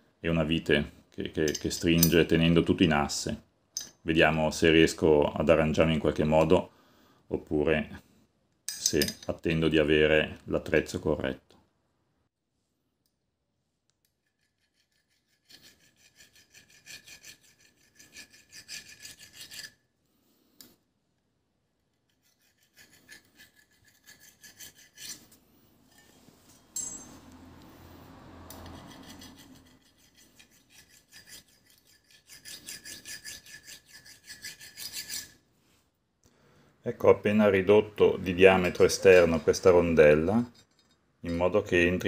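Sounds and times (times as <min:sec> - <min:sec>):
hand file scraping metal: 0:14.1 - 0:19.8, 0:21.9 - 0:26.7, 0:28.1 - 0:35.4.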